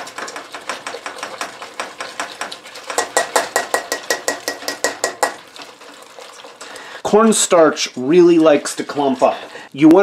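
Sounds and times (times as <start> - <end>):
skewers clicking against a pot: 0.0 - 10.0.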